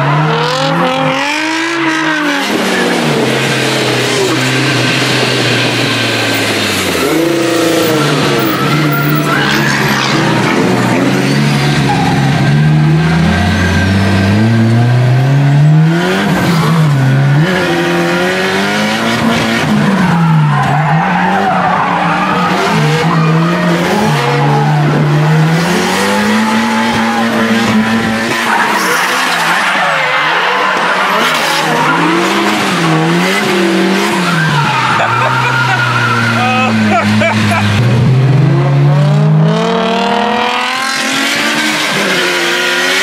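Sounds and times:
car engine revving: 0.0s - 43.0s
tyres squealing: 0.1s - 14.6s, 19.2s - 37.8s.

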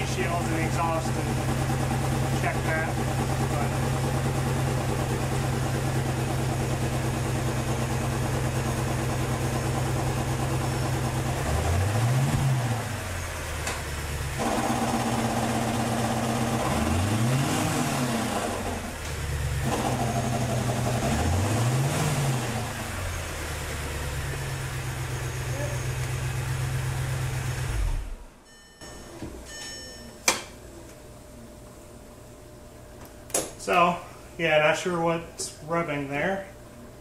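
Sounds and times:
car engine idling and revving: 0.0s - 28.4s.

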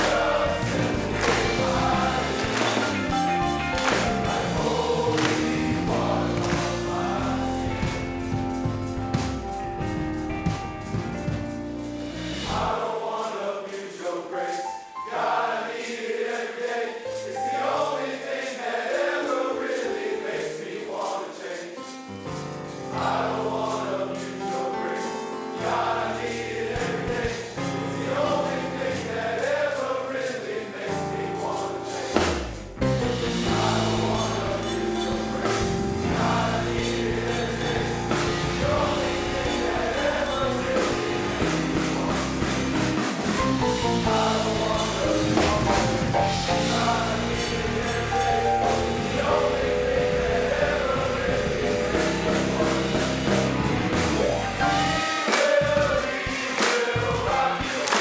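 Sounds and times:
men's choir singing in harmony: 0.0s - 8.7s, 12.0s - 58.0s
bass line: 0.0s - 12.8s, 32.2s - 55.0s
band accompaniment: 0.0s - 58.0s.

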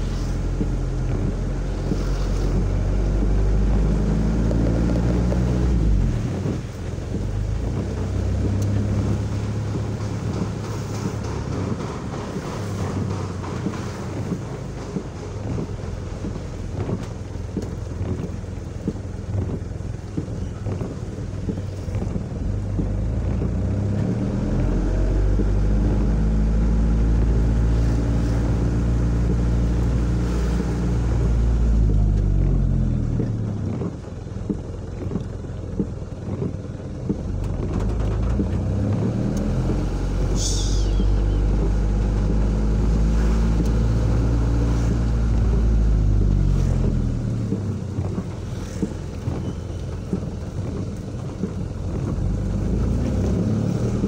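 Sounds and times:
tyres on wet road: 0.0s - 54.0s
wind on microphone: 0.0s - 54.0s.

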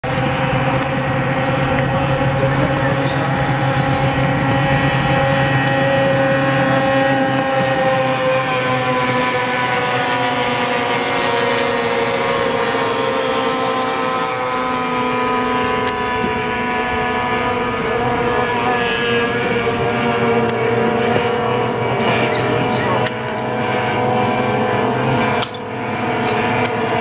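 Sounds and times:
racing boat engines: 0.0s - 27.0s.

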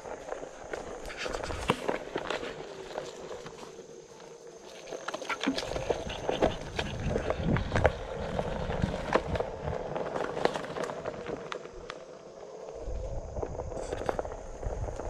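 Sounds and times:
tire crunching over dirt and twigs: 0.0s - 15.0s
wind rumble on microphone: 5.4s - 15.0s.

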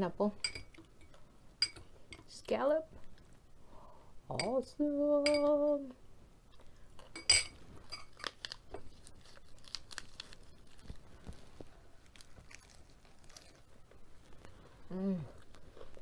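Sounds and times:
crunching and chewing: 8.0s - 16.0s
lettuce leaf crinkling: 8.1s - 14.7s.

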